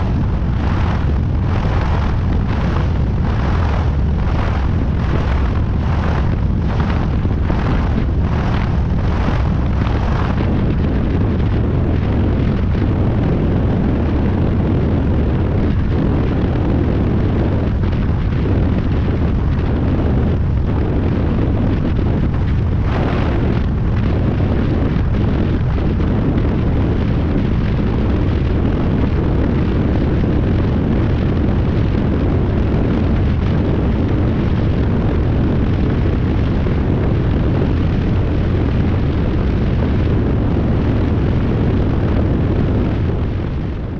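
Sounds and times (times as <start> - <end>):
aircraft engine: 0.0 - 43.9
wind buffeting microphone: 0.0 - 43.9.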